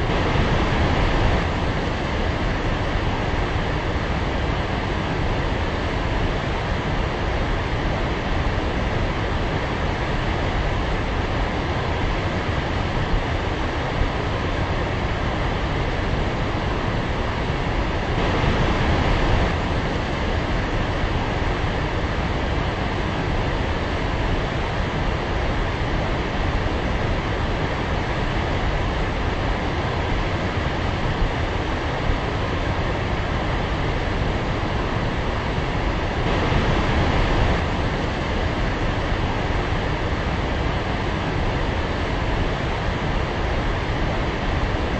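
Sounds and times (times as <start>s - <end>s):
waterfall rushing: 18.2s - 19.8s, 36.1s - 40.0s.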